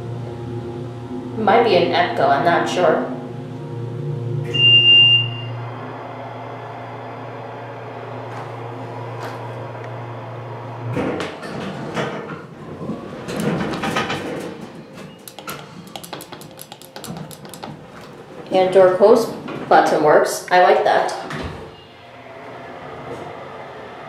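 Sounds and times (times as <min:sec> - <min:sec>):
elevator car humming: 0:00.0 - 0:24.0
high electronic beep: 0:04.4 - 0:05.7
elevator doors clattering open: 0:10.8 - 0:20.0, 0:21.1 - 0:24.0.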